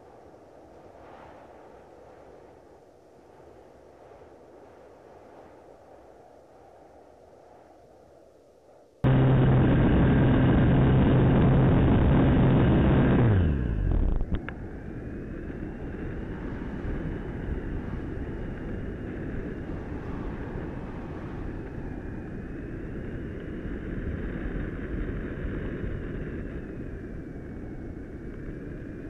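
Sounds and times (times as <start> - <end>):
airflow rushing over camera: 9.0 - 21.6
faint high whine: 9.0 - 29.0.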